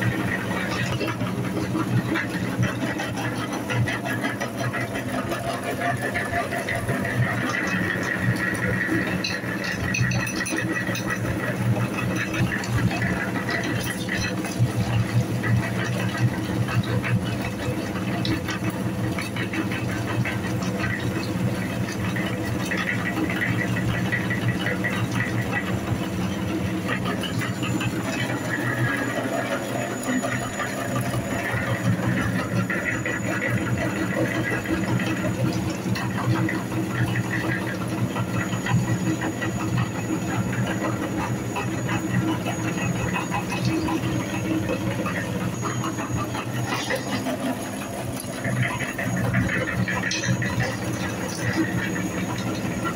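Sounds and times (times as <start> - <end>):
meat grinder grinding: 0.0 - 52.9.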